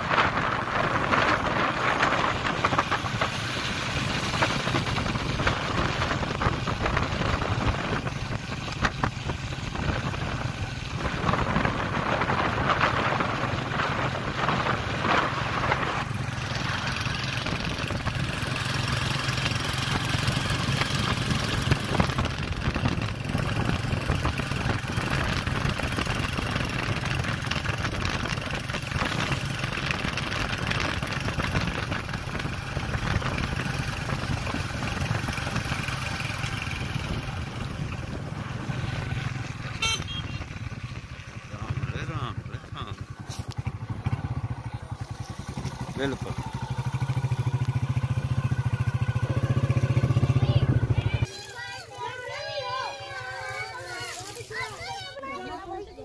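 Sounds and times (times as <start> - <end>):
wind rushing over microphone: 0.0 - 51.3
vehicle engine running: 0.0 - 55.0.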